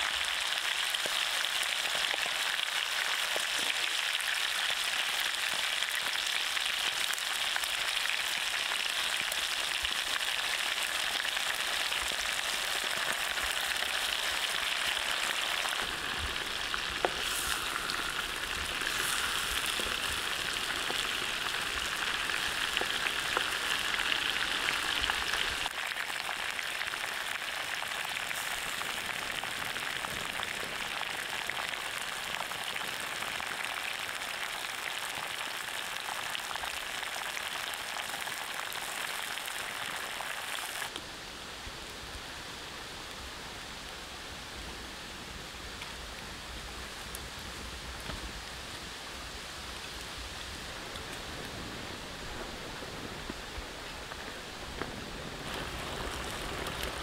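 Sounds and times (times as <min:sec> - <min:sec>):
oil sizzling in a wok: 0:00.0 - 0:40.9
oil popping: 0:12.9 - 0:25.3.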